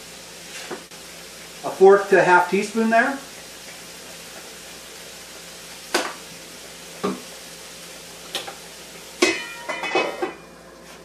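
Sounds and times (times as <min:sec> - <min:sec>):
vegetables sizzling in oil: 0:00.0 - 0:11.0
cookware knocking: 0:09.2 - 0:10.4
pots and utensils clattering: 0:09.2 - 0:10.5.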